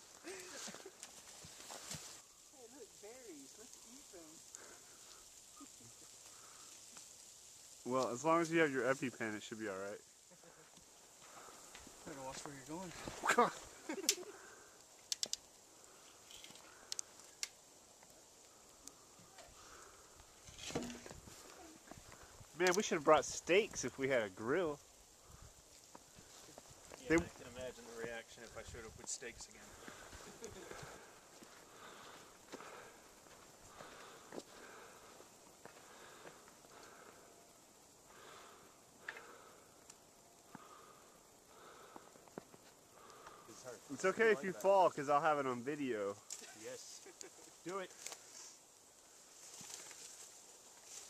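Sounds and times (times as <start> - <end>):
footsteps crunching on snow: 0.0 - 8.6, 10.6 - 14.0, 25.4 - 37.1
faint steady hiss: 0.0 - 51.0
light clicks: 15.1 - 15.5.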